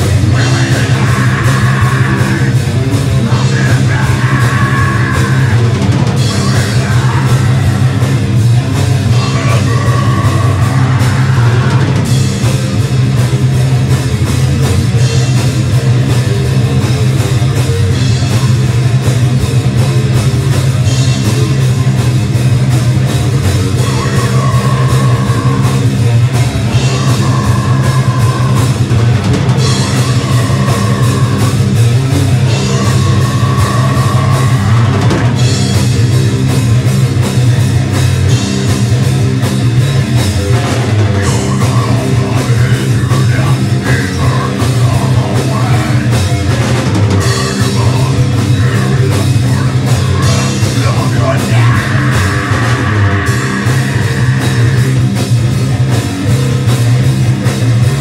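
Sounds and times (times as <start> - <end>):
heavy metal band playing: 0.0 - 58.0.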